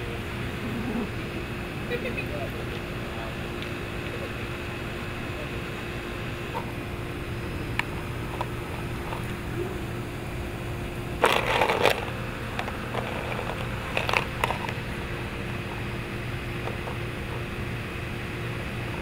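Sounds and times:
ice cubes rattling in plastic bowl: 0:11.2 - 0:12.1.

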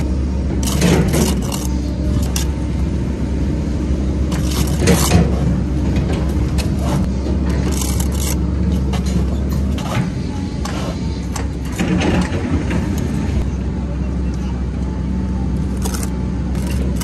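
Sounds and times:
trowel scraping mortar on bricks: 0:00.0 - 0:02.5, 0:04.3 - 0:05.6, 0:06.6 - 0:11.4, 0:15.8 - 0:17.0
low machinery engine hum: 0:00.0 - 0:17.0.

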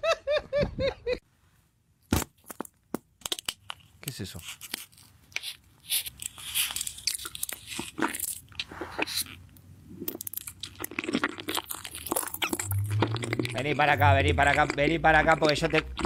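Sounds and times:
gummy candy chewing: 0:03.3 - 0:16.0.

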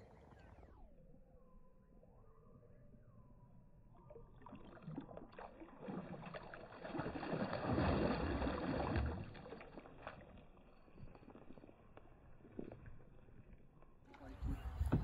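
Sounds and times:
shallow water splashing: 0:04.0 - 0:13.7.

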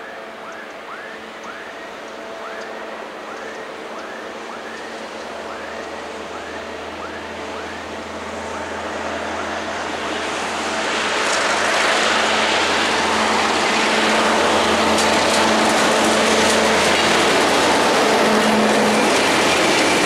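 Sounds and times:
diesel locomotive engines droning: 0:00.0 - 0:20.0
wheels clicking on rails: 0:00.0 - 0:20.0.

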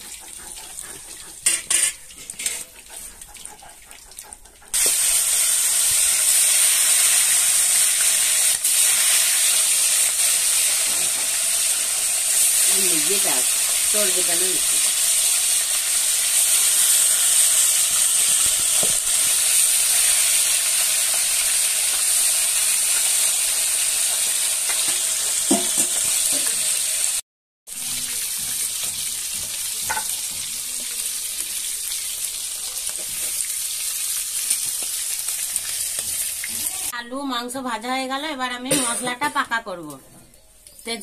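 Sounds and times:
chicken sizzling in hot oil: 0:04.7 - 0:37.0.

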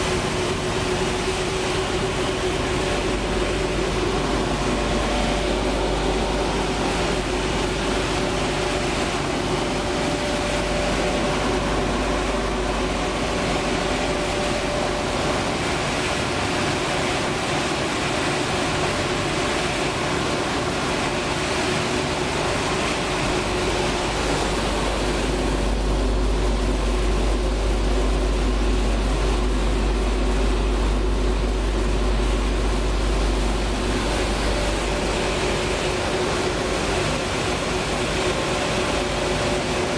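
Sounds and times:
industrial machinery drone: 0:00.0 - 0:39.9
deep low rumble: 0:24.2 - 0:36.4.

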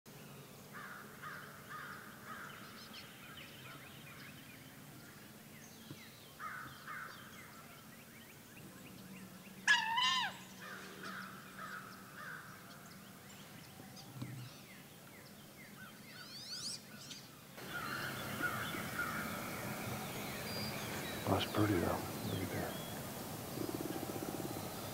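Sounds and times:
ducks and birds calling: 0:00.7 - 0:24.9
loud squealing bird call: 0:09.7 - 0:10.6.

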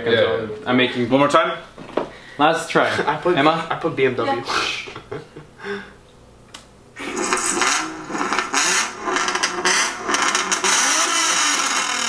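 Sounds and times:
car exhaust revving: 0:07.0 - 0:12.0.

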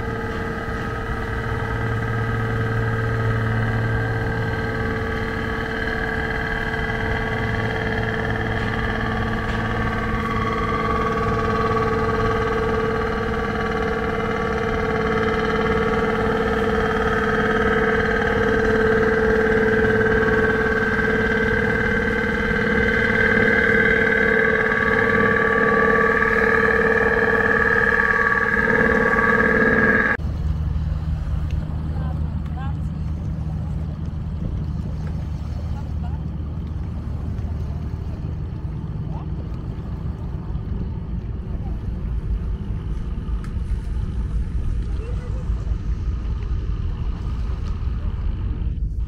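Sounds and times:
boat engine rumbling: 0:00.0 - 0:49.0.

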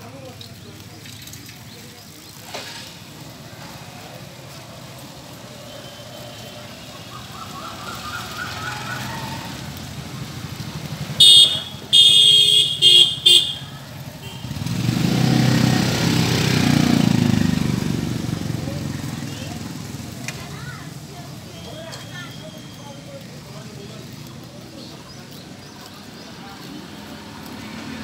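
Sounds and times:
road noise: 0:00.0 - 0:28.0
vehicle engine rumble: 0:00.0 - 0:28.0
vehicle horn honking: 0:11.2 - 0:14.6.

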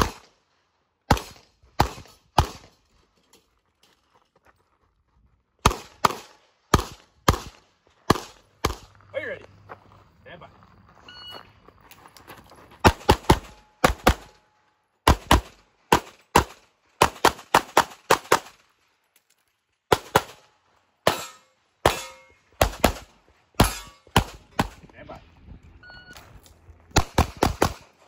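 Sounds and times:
pistol shots: 0:00.0 - 0:00.4, 0:01.1 - 0:02.8, 0:05.6 - 0:08.9, 0:12.8 - 0:14.4, 0:15.0 - 0:18.6, 0:19.9 - 0:24.8, 0:26.9 - 0:28.0.

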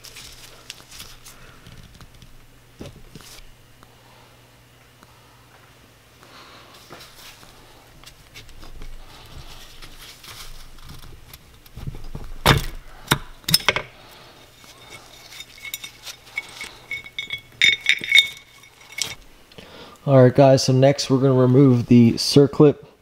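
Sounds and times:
metal scraping and handling: 0:13.4 - 0:19.2
ringing metal clinks: 0:14.8 - 0:19.2.

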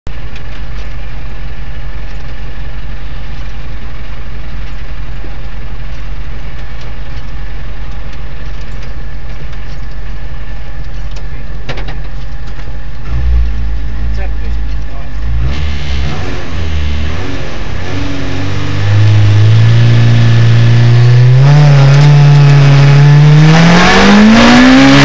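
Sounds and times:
car engine idling inside cabin: 0:00.1 - 0:17.8.

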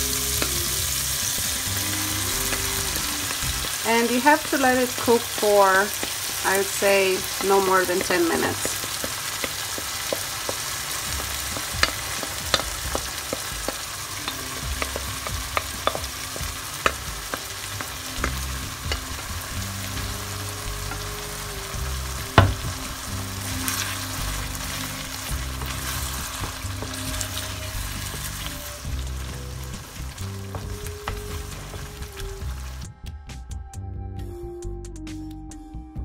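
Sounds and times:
food sizzling in a frying pan: 0:00.0 - 0:32.9
wooden spatula scraping and stirring: 0:02.5 - 0:21.4, 0:22.5 - 0:32.8
spatula tapping: 0:03.6 - 0:19.4, 0:29.8 - 0:32.0.

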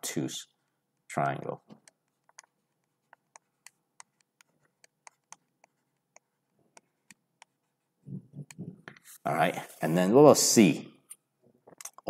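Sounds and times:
stylus tapping on a tablet: 0:01.7 - 0:07.6.

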